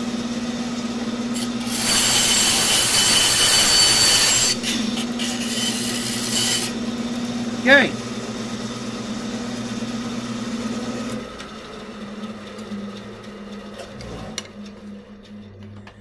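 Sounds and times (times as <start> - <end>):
bandsaw humming: 0.0 - 15.6
low wavering hum: 12.7 - 16.0.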